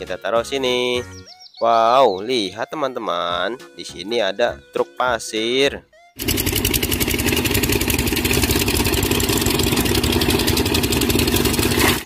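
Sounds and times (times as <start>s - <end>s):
diesel engine chattering: 6.2s - 12.0s.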